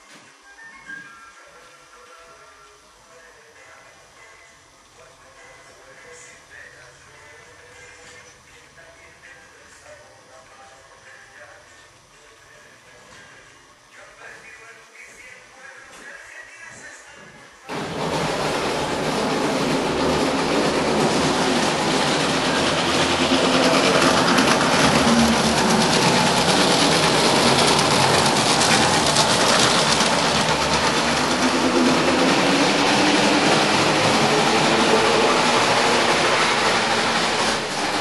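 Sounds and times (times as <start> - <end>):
train wheels rattling on track: 17.7 - 38.0.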